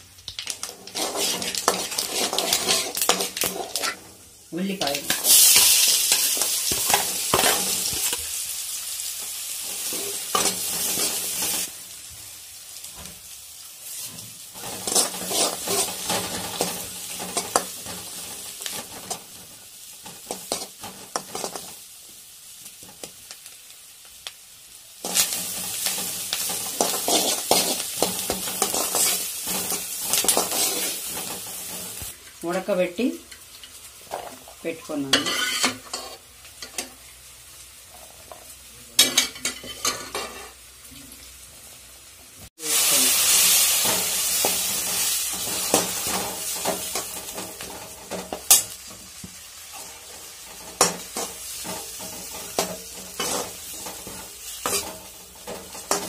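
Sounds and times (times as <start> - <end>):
onions sizzling in hot oil: 0.0 - 56.0
ladle scraping pan: 0.6 - 4.1, 14.6 - 18.0.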